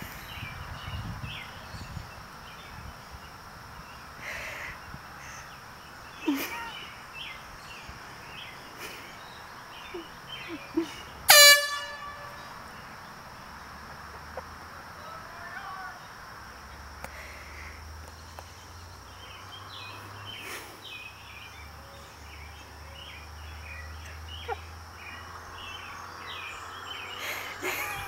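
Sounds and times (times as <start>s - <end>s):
air horn honk: 11.3s - 12.6s.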